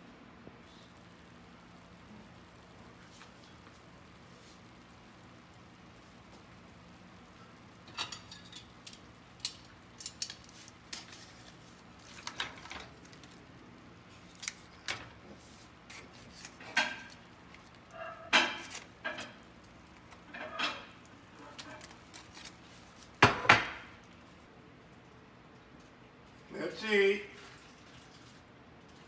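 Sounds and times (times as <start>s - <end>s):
aluminium foil rustling: 7.8s - 24.4s.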